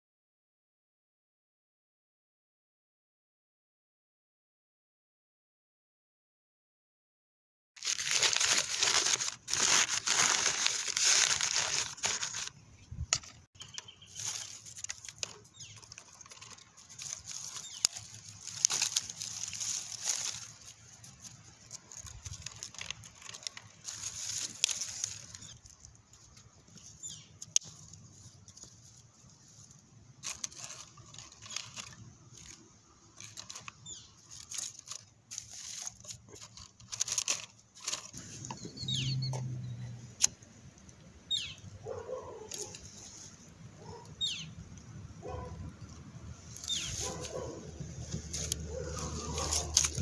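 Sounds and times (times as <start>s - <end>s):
sticks and paper rustling: 7.8s - 38.6s, 42.4s - 44.1s, 46.4s - 50.0s
twigs knocking against bricks: 8.0s - 38.2s, 42.0s - 43.0s, 46.5s - 50.0s.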